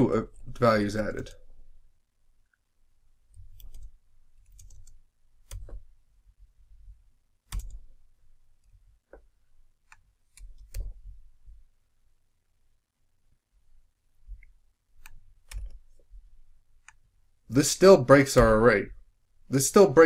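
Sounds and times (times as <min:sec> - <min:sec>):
keyboard keystrokes clicking: 0:03.4 - 0:05.8, 0:07.5 - 0:07.9, 0:15.0 - 0:15.8.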